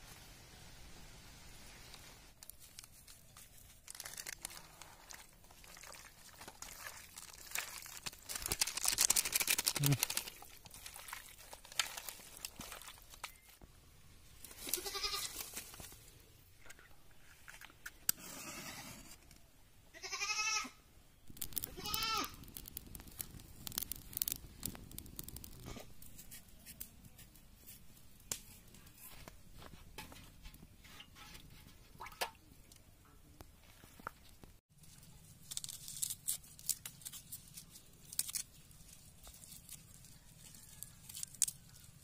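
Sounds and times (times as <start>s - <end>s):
goat bleating: 14.8s - 15.3s, 20.0s - 20.8s.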